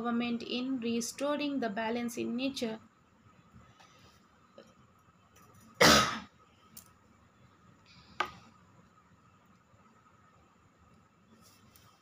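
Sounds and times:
loud cough: 5.8s - 6.3s.

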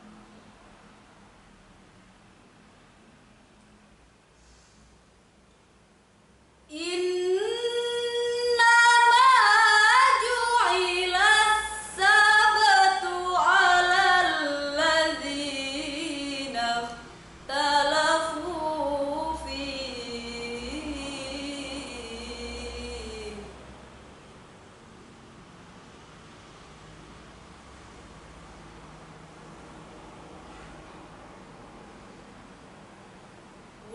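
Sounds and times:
woman reciting melodically: 6.7s - 23.6s.

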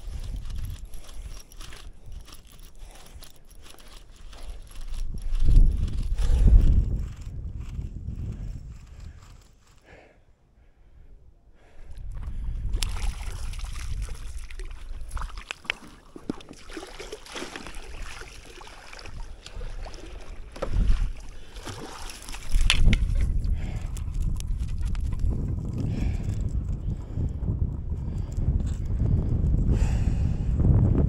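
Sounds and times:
handling knocks and clicks: 0.0s - 7.8s, 20.2s - 25.2s
wind buffeting microphone: 0.0s - 10.1s, 10.9s - 31.0s
water sloshing around boat: 12.2s - 24.7s.

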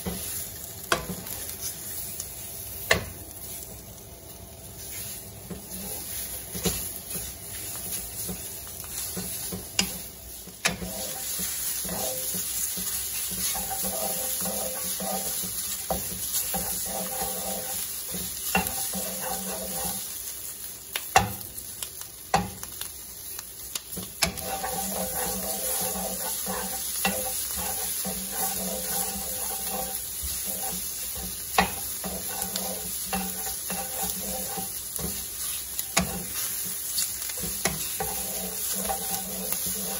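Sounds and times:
spatula scraping in a pan: 0.0s - 21.4s, 23.3s - 39.9s
shrimp sizzling in a frying pan: 0.0s - 39.9s
spatula tapping against pan: 9.1s - 10.0s, 20.9s - 21.4s, 22.3s - 22.7s, 23.8s - 25.4s, 31.2s - 34.2s, 35.9s - 36.4s.

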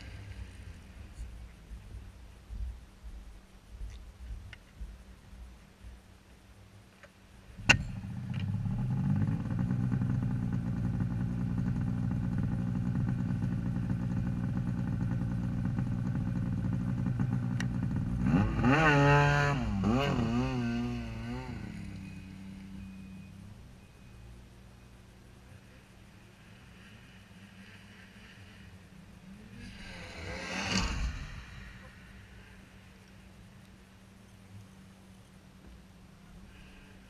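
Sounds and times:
snowmobile engine idling and revving: 0.0s - 2.7s, 7.5s - 33.3s.

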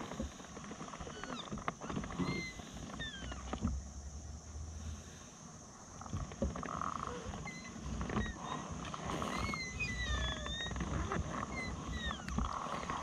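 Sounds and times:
birds whistling: 7.0s - 13.0s.

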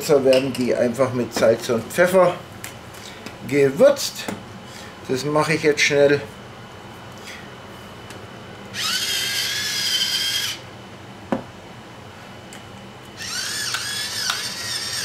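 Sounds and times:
electric mill motor whining: 8.7s - 10.6s, 13.2s - 15.0s.

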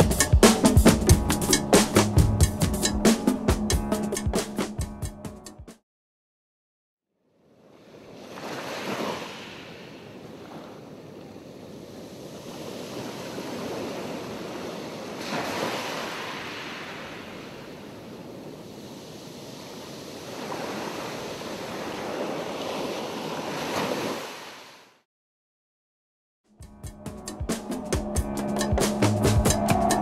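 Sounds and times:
waves washing in: 7.4s - 25.0s.

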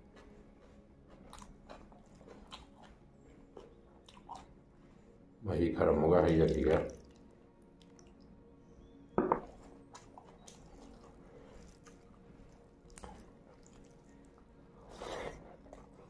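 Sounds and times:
fingers squishing in rice: 9.5s - 16.0s
wet mouthful eating: 9.6s - 16.0s.

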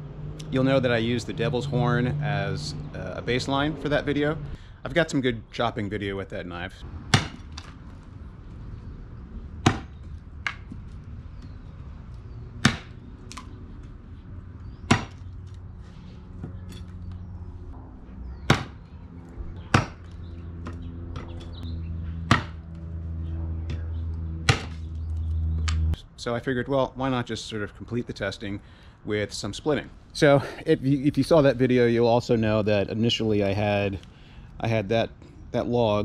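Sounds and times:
knife chopping wood: 7.1s - 7.7s, 9.6s - 10.8s, 12.6s - 13.5s, 14.8s - 15.3s, 18.5s - 18.8s, 19.7s - 21.4s, 22.3s - 22.6s, 24.5s - 24.9s.

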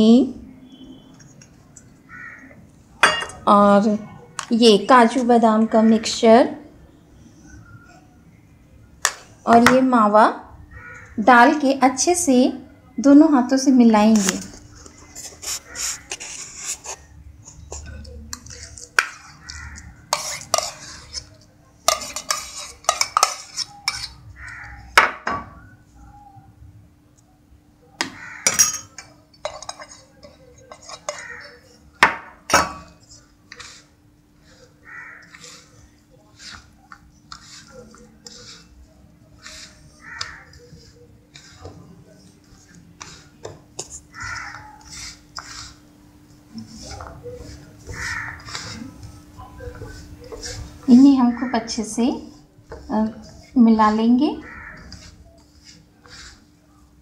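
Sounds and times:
crow cawing: 2.1s - 2.6s, 10.7s - 11.2s, 19.4s - 20.0s, 24.4s - 24.9s, 28.0s - 28.6s, 31.2s - 31.6s, 34.8s - 35.7s, 39.9s - 40.6s, 44.1s - 44.9s, 47.9s - 48.8s, 54.4s - 55.1s
hand rubbing crumbly mix: 14.1s - 24.7s, 32.9s - 57.0s
spoon scraping steel bowl: 14.1s - 24.8s, 28.3s - 31.8s, 32.5s - 45.9s, 46.5s - 56.6s.

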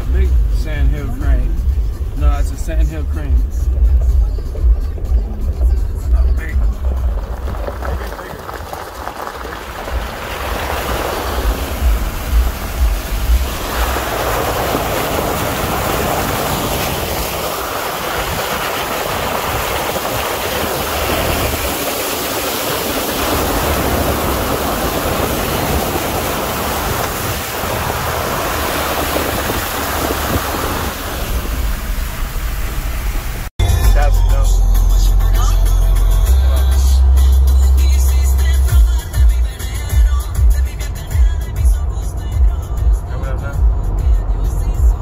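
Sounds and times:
low vehicle rumble: 0.0s - 45.0s
road noise on dirt trail: 0.0s - 45.0s
rushing wind: 6.6s - 33.5s.

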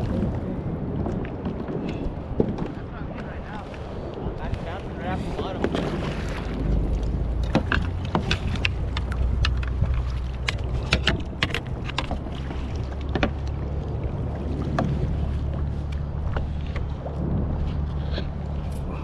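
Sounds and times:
water lapping against kayak: 0.0s - 19.0s
wind rumble on microphone: 0.0s - 19.0s
sharp clicks and knocks: 7.4s - 12.3s.

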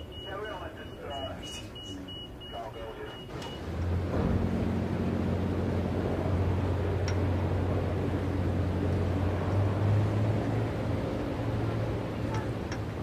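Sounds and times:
low machinery hum: 0.0s - 13.0s.

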